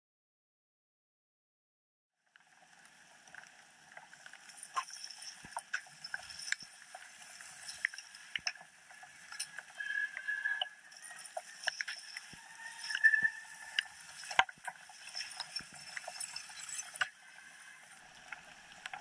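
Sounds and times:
high squeal: 0:09.3 - 0:14.4.

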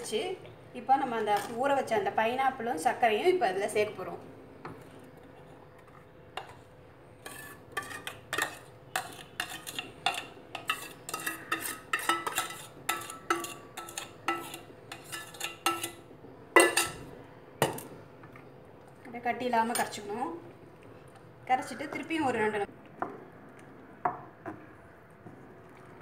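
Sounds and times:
utensil scraping a steel bowl: 0:07.2 - 0:16.1.

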